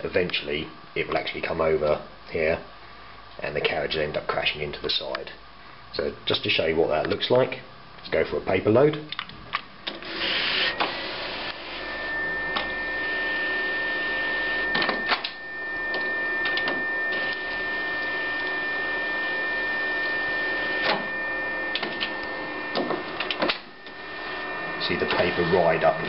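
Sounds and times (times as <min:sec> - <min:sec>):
plotter feed whine: 0:09.9 - 0:26.0
mechanism clicks and clunks: 0:21.7 - 0:24.0.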